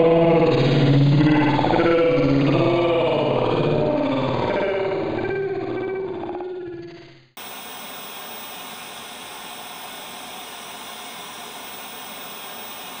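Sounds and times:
white-noise static: 0:07.4 - 0:13.0.

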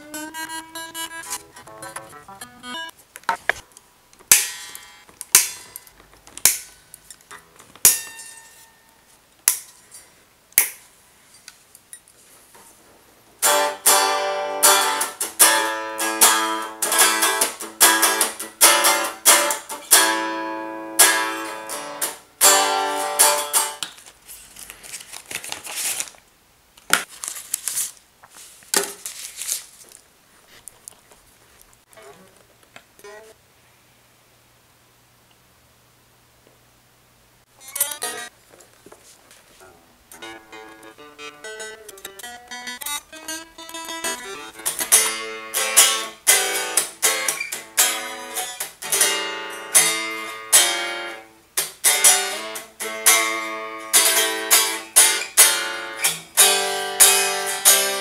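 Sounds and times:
electric guitar single notes: 0:00.0 - 0:02.9, 0:13.4 - 0:23.8, 0:40.1 - 0:51.2
electric guitar strummed chords: 0:00.0 - 0:03.4, 0:13.4 - 0:23.8, 0:40.1 - 0:51.2.

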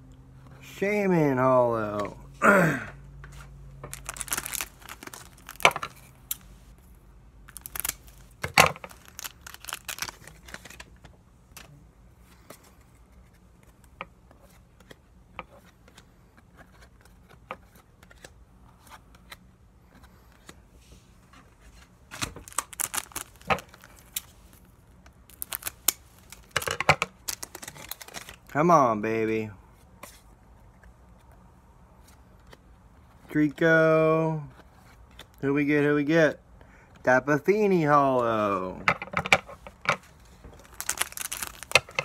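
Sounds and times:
trading cards flicking and rustling: 0:03.2 - 0:06.6, 0:07.4 - 0:28.5, 0:38.3 - 0:42.0.

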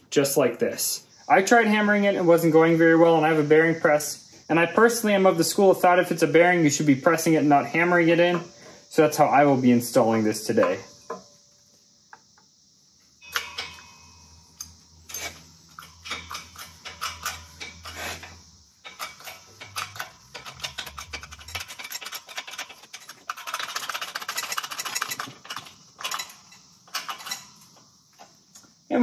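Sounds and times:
light metal clicks and knocks: 0:14.6 - 0:28.8.

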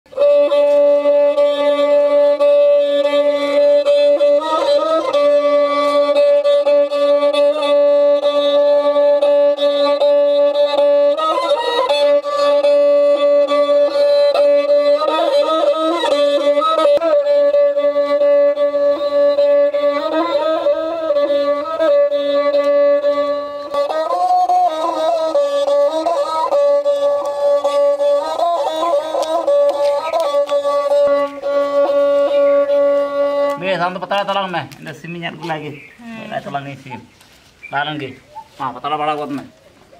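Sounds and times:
bowed fiddle playing: 0:00.1 - 0:39.9.

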